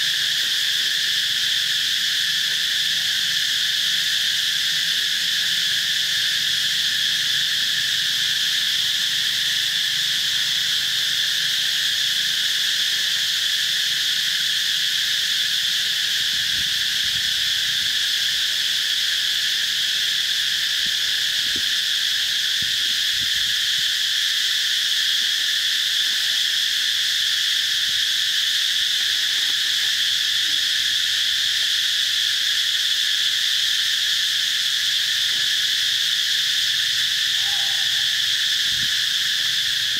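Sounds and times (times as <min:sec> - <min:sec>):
insects droning: 0:00.0 - 0:39.9.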